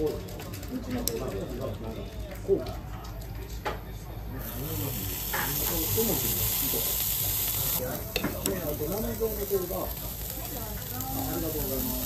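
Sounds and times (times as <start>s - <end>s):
meat sizzling on a grill: 4.3s - 12.0s.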